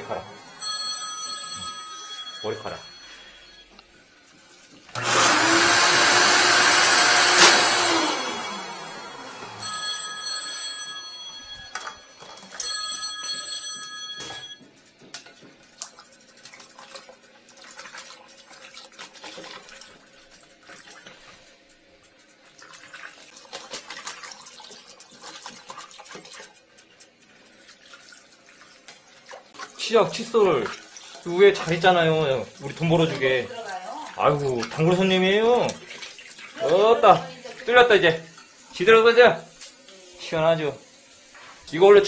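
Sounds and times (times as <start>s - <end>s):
telephone ringing: 0.0s - 3.8s, 9.5s - 14.7s
tap running into washbasin: 22.1s - 37.6s.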